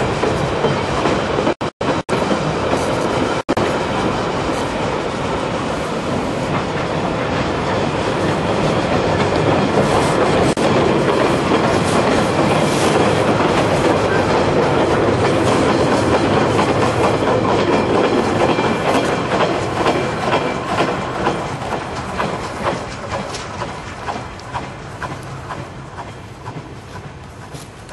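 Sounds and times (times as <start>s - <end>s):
train wheels clattering over rail joints: 0.0s - 27.9s.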